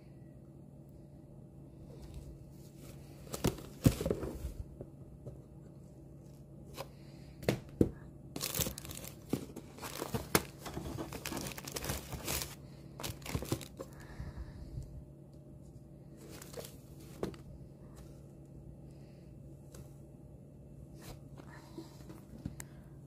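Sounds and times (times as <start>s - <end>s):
plastic wrap crinkling: 8.4s - 14.0s.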